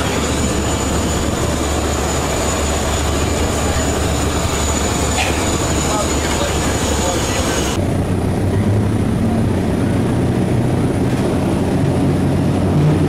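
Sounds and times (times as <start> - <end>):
thin high whine: 0.0 - 7.8
turboprop engine drone: 0.0 - 13.0.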